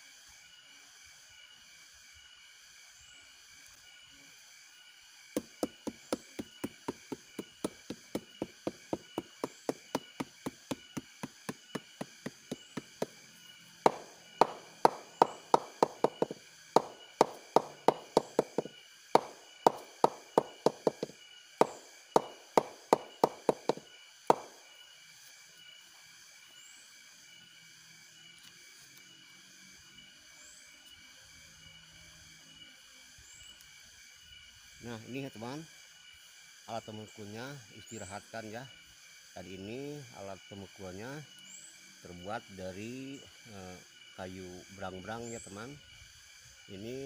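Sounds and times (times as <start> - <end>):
wooden mallet knocking on stalk: 5.4 - 13.1, 13.9 - 24.5.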